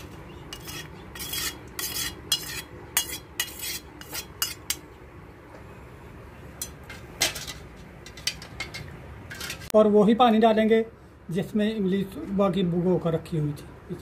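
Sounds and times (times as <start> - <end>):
steel skimmer scraping a steel pan: 0.0 - 4.8.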